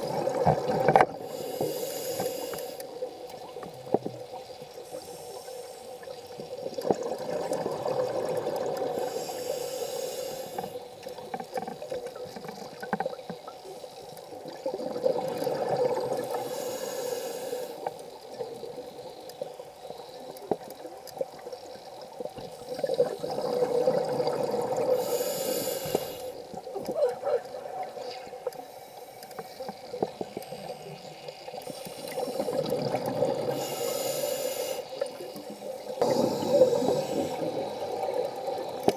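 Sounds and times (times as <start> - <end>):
diver breathing through a regulator: 1.2 - 2.9, 4.8 - 6.1, 8.6 - 10.9, 15.9 - 18.0, 24.4 - 26.5, 28.6 - 38.9.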